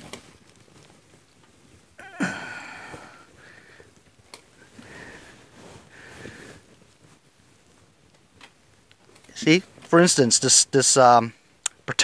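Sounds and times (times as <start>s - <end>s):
man groaning exhale: 2.0s - 3.3s.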